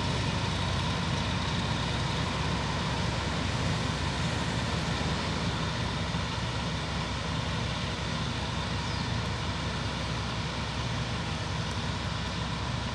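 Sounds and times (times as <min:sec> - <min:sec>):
diesel locomotive engine rumbling: 0:00.0 - 0:12.9.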